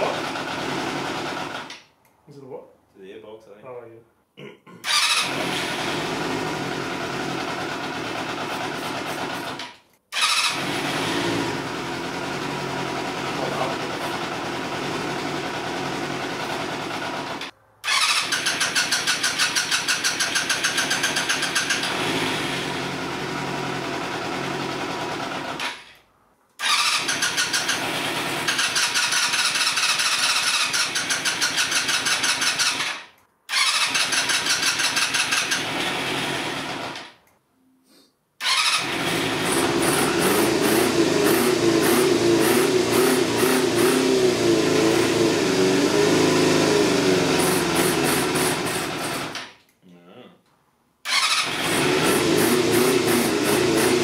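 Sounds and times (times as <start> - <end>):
motorcycle engine running: 0.0 - 1.7, 5.0 - 9.6, 10.2 - 25.6, 38.5 - 49.4, 51.2 - 54.0.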